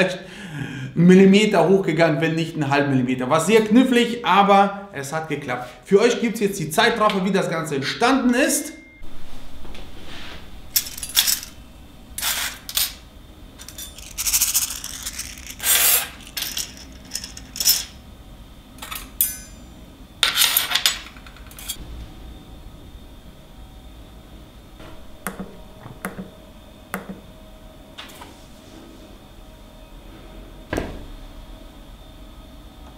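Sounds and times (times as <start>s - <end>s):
metal parts scraping: 10.8s - 11.6s, 12.2s - 13.0s, 13.6s - 18.0s, 18.8s - 19.4s, 20.2s - 21.8s.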